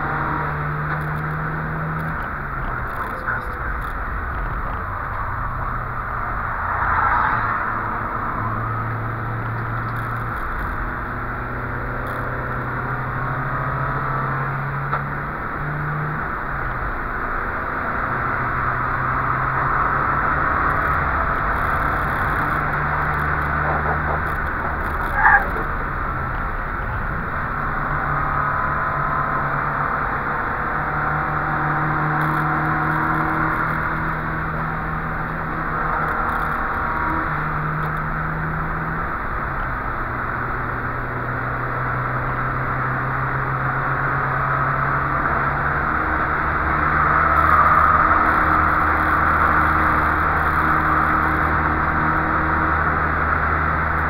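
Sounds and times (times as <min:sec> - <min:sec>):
car engine under load: 0:00.0 - 0:54.0
tyre noise: 0:20.6 - 0:27.4.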